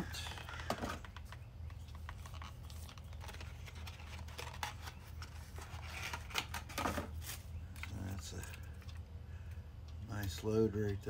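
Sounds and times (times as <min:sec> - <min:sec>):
plastic packaging rustling: 0:00.0 - 0:08.1
steady low hum: 0:00.0 - 0:11.0.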